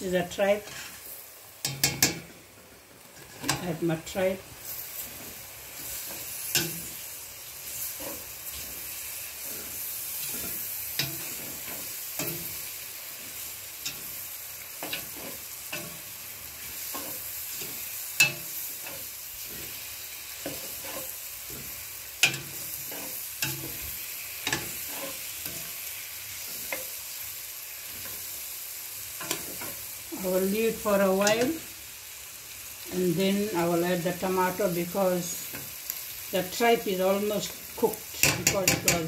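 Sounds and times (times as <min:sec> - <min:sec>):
tripe sizzling in a pot: 0:00.0 - 0:39.0
metal spoon scraping a pot: 0:20.4 - 0:23.8, 0:24.4 - 0:25.6.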